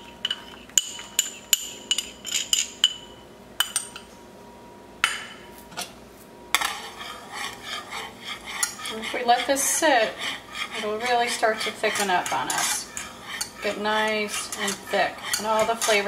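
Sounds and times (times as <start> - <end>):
wire whisk beating in saucepan: 6.6 - 16.0
metal utensil clinking on cookware: 8.5 - 16.0.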